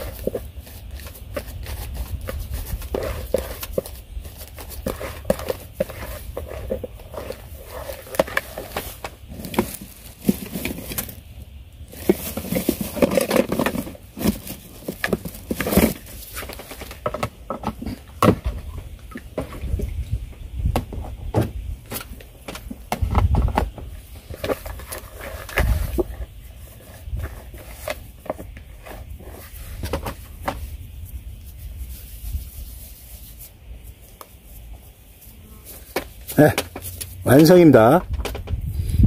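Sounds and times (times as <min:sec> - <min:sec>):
hands kneading paste in bowl: 0:00.0 - 0:09.8.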